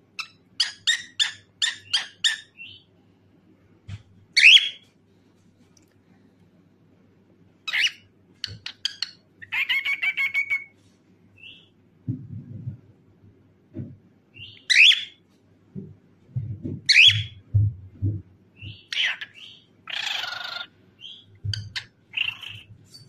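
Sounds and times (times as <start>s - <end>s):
cockatiel chirping and whistling: 0.2s - 2.8s, 4.4s - 4.8s, 7.7s - 10.7s, 14.4s - 15.1s, 16.9s - 17.4s.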